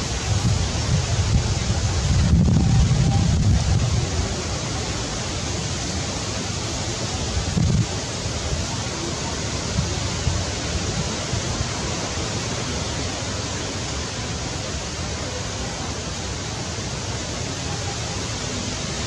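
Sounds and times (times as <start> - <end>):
wind blowing on microphone: 0.0 - 6.0, 6.6 - 12.8.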